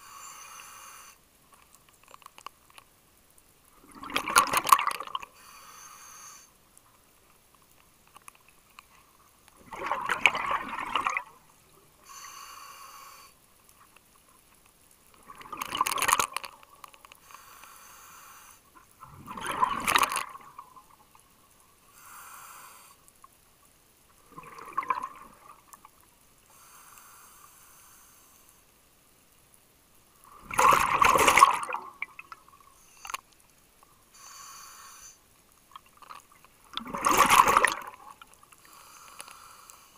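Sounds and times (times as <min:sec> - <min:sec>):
regulator inhale hiss: 0:00.0 - 0:01.3, 0:05.3 - 0:06.6, 0:12.0 - 0:13.4, 0:17.2 - 0:18.7, 0:21.8 - 0:23.1, 0:26.5 - 0:28.7, 0:32.8 - 0:33.3, 0:34.0 - 0:35.3, 0:38.6 - 0:39.9
exhaled bubbles bubbling: 0:03.8 - 0:05.2, 0:09.6 - 0:11.4, 0:15.2 - 0:16.6, 0:19.0 - 0:21.0, 0:24.2 - 0:25.8, 0:30.4 - 0:32.6, 0:36.7 - 0:38.2.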